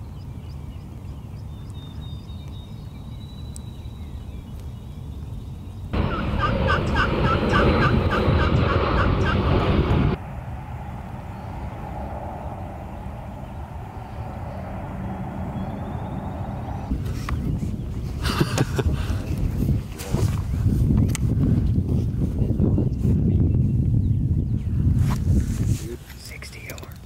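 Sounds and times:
low background rumble: 0:00.0 - 0:19.2
wild turkey gobbling: 0:06.0 - 0:09.4.

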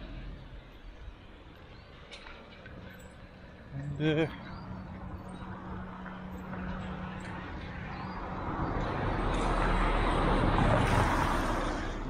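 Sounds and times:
vehicle passing: 0:03.7 - 0:12.0.

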